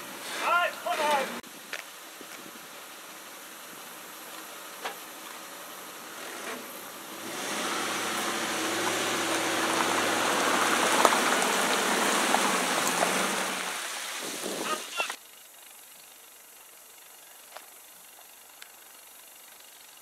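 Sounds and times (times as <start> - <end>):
pickup truck engine: 2.6 - 19.8
water pouring and splashing: 6.1 - 15.2.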